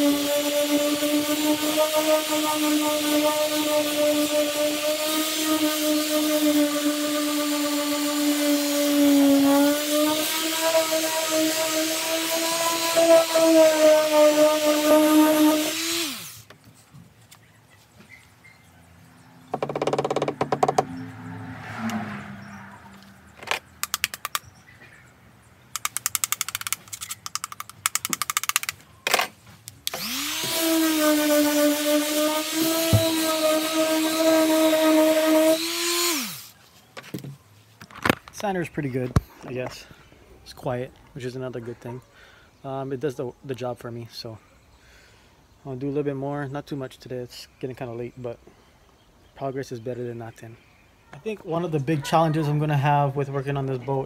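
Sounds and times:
orbital sander running: 0.0s - 16.5s, 29.9s - 36.5s
scattered knocks: 19.5s - 20.9s
quick rattling clicks: 23.4s - 24.5s, 25.7s - 29.2s.

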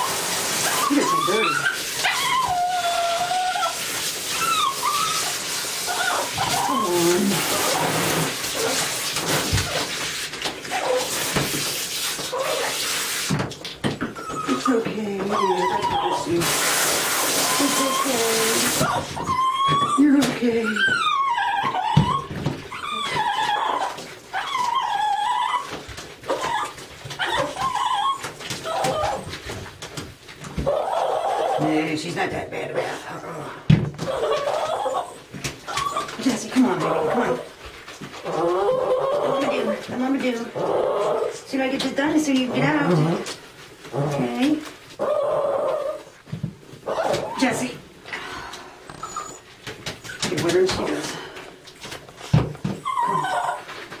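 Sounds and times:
dog whining and crying: 0.0s - 10.0s, 10.6s - 11.2s, 14.0s - 16.5s, 17.2s - 29.7s, 30.4s - 31.8s, 34.0s - 41.5s, 45.0s - 46.2s, 46.8s - 47.8s, 48.9s - 50.3s, 52.2s - 54.0s
running bath water: 0.0s - 54.0s.

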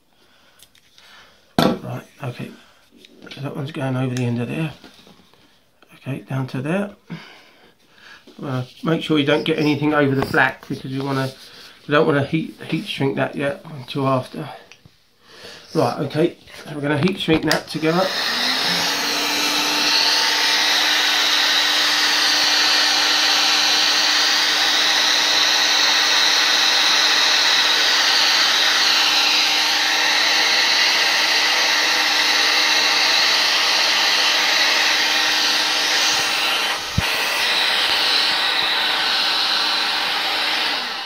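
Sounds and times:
heat gun blowing air with hum: 17.5s - 41.0s.

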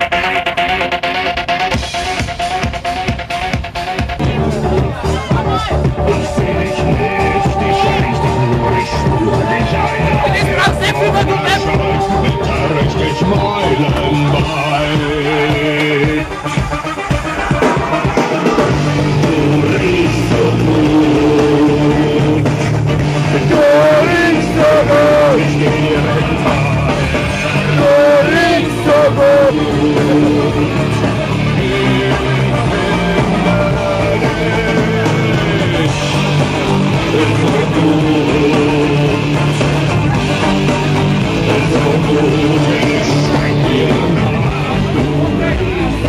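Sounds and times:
rock music with guitar: 0.0s - 46.0s
person singing long wavering notes: 6.0s - 10.2s.

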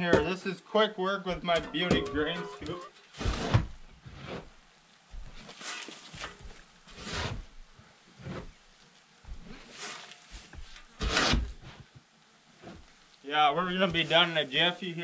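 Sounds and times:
shovel scraping floor: 3.2s - 4.5s, 5.4s - 7.4s, 9.4s - 11.8s.

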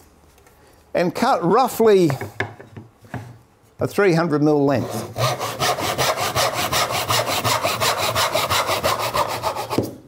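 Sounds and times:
hand saw cutting wood: 4.8s - 9.9s.

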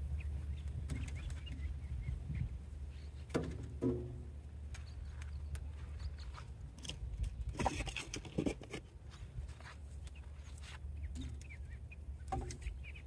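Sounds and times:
steady low rumble: 0.0s - 7.6s
firewood knocking and scraping: 3.3s - 4.3s.

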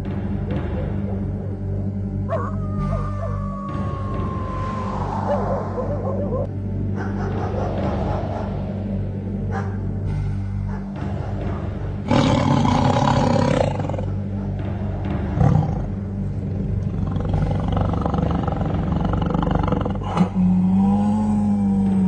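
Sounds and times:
steady low drone: 0.0s - 22.0s
loud roaring: 12.1s - 14.2s.

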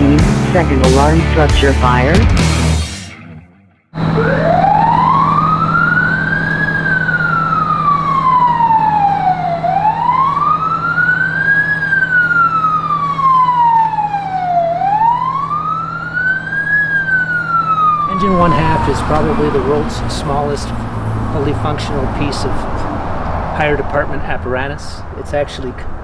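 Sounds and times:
toy fire engine siren wailing: 4.0s - 20.0s.

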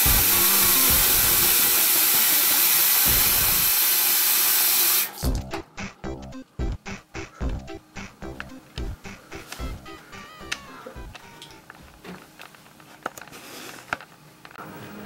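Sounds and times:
music: 0.0s - 1.9s, 3.1s - 3.7s, 5.2s - 11.9s, 14.6s - 15.0s
faucet running into sink: 0.6s - 5.2s.

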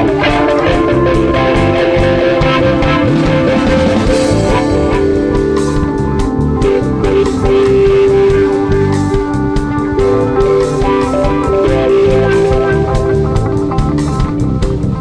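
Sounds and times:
drum kit: 0.0s - 15.0s
rock guitars holding long notes: 0.0s - 15.0s.

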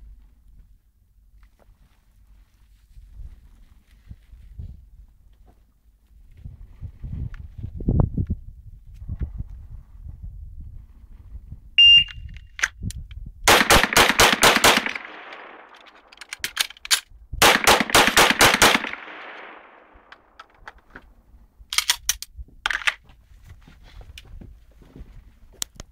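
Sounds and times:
shot timer beep: 11.8s - 12.3s
pistol shots: 13.5s - 16.1s, 17.4s - 20.4s.

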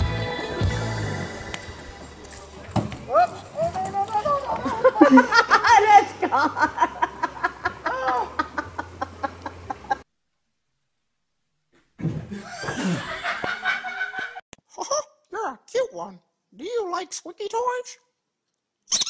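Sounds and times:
noise: 0.0s - 14.8s
man laughing in bursts: 4.6s - 10.0s, 12.4s - 14.4s.

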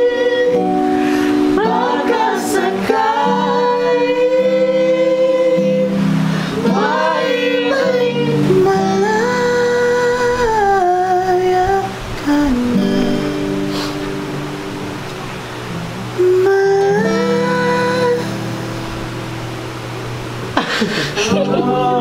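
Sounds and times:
man singing long held notes: 0.0s - 14.1s, 15.8s - 18.6s, 21.3s - 22.0s
voices singing along: 0.0s - 14.2s, 15.8s - 19.3s, 20.6s - 22.0s
strummed acoustic guitar: 0.0s - 22.0s.

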